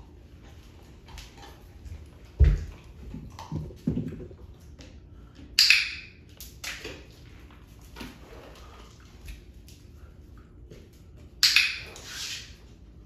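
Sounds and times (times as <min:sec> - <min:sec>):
puppy paws thudding on wood: 0:02.3 - 0:04.4.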